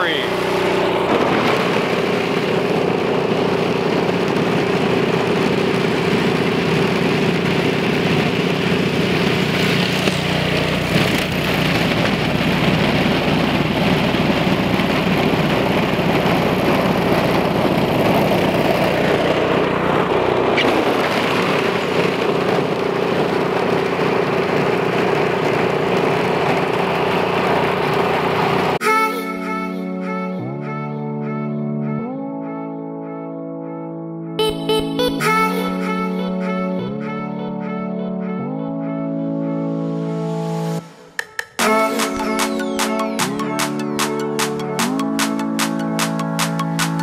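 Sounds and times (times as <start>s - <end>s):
deeper rumble: 0.0s - 28.8s
snowblower engine running: 0.0s - 28.8s, 42.1s - 47.0s.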